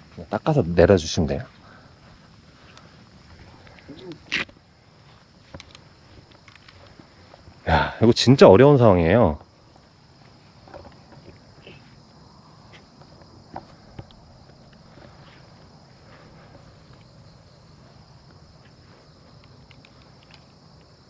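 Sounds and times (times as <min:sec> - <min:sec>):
insects chirring: 0:00.0 - 0:21.0.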